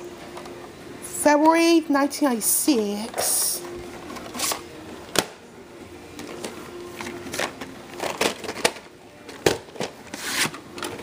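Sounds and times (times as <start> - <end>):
plastic tape cases clicking: 6.2 - 10.0.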